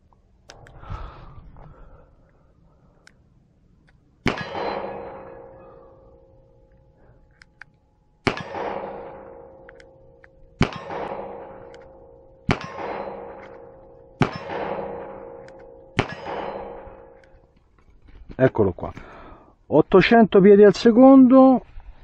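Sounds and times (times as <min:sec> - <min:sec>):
revolver gunshots with metallic ringing: 0:04.2 - 0:06.6, 0:08.2 - 0:17.3.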